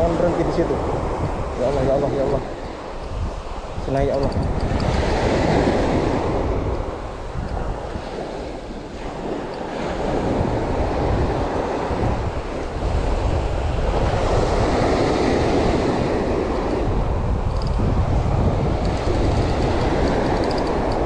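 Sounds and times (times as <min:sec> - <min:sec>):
wind buffeting microphone: 0:00.0 - 0:21.0
surf breaking on beach: 0:04.5 - 0:21.0.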